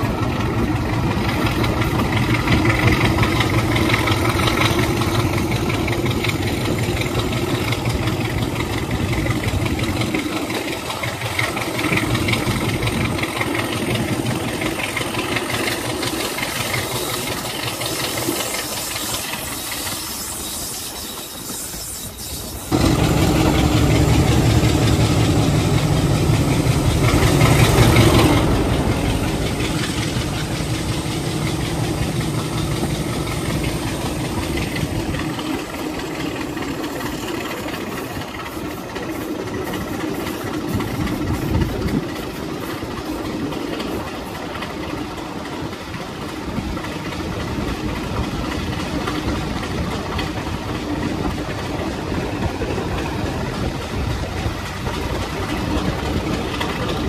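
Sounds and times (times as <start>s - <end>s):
diesel locomotive engine running: 0.0s - 57.0s
wheels on rails: 0.0s - 57.0s
wind at cab window: 21.5s - 36.8s, 37.4s - 57.0s.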